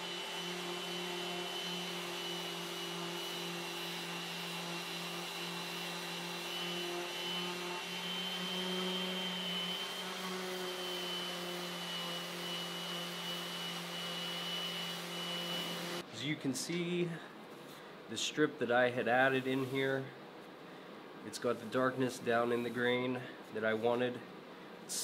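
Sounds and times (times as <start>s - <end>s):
orbital sander sanding wood: 0.0s - 16.0s.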